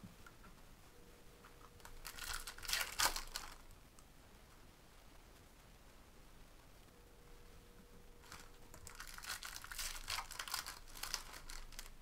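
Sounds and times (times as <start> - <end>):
foil wrappers crinkling: 1.8 - 3.7, 8.2 - 12.0.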